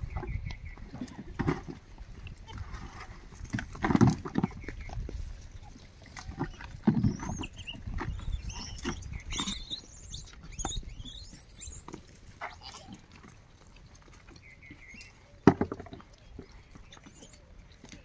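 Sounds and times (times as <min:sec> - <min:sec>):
high squeaky animal calls: 0:06.4 - 0:13.0.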